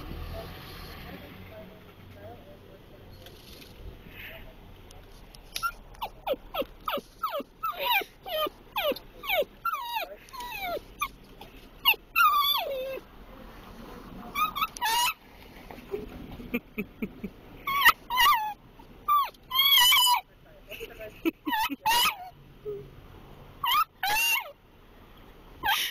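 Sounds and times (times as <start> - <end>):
dog whining and whimpering: 5.6 - 13.0, 14.4 - 15.2, 17.6 - 20.2, 21.4 - 22.9, 23.6 - 24.6, 25.6 - 25.9.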